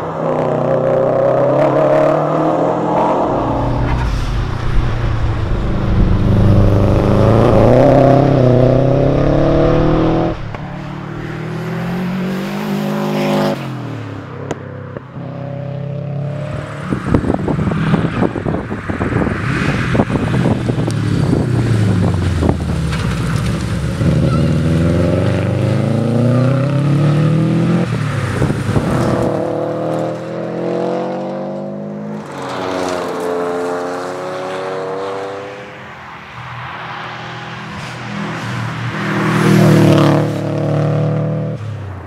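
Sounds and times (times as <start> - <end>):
car engine accelerating: 1.2 - 13.7.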